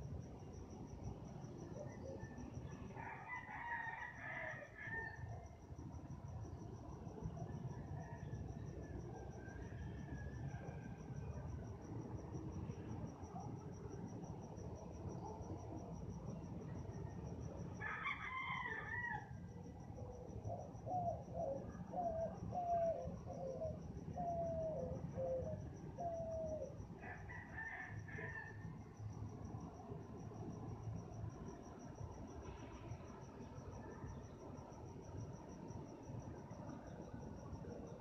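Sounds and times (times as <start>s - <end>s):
crickets chirping: 0.0s - 38.0s
rooster crowing: 3.0s - 5.2s, 17.8s - 19.3s, 27.0s - 28.6s.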